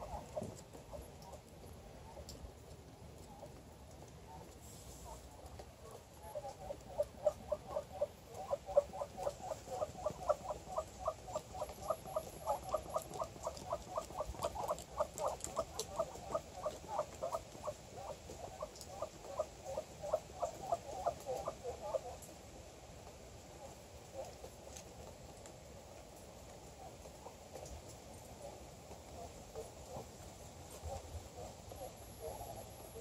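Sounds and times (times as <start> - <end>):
ducks chirping: 0.0 - 1.4, 5.8 - 22.2.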